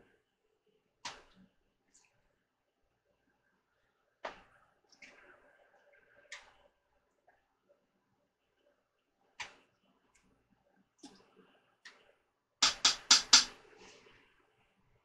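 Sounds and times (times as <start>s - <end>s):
ladle knocking against crock: 12.6s - 13.5s.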